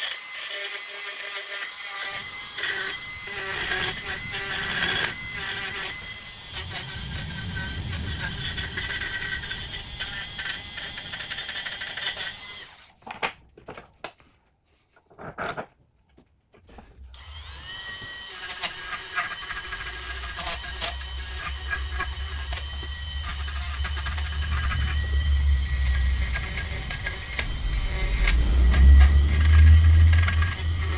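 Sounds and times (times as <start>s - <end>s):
rotary tool wire brush scrubbing: 18.3s - 30.9s.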